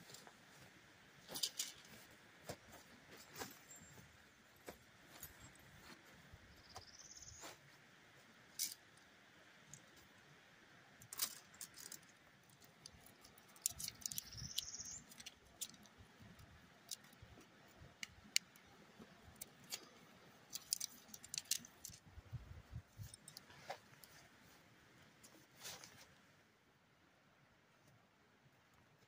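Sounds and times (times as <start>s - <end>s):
tent pole clicks and clinks: 1.2s - 3.7s, 8.5s - 10.3s, 11.0s - 24.3s.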